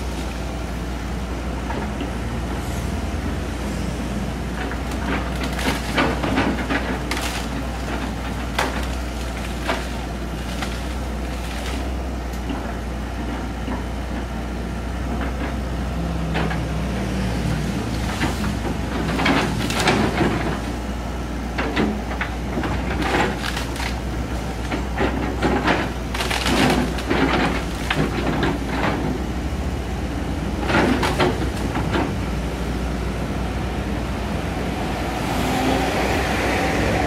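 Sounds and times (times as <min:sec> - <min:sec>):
excavator diesel engine running: 0:00.0 - 0:37.0
branches cracking and snapping: 0:04.6 - 0:12.5, 0:16.5 - 0:21.0, 0:21.6 - 0:29.2, 0:30.6 - 0:32.2.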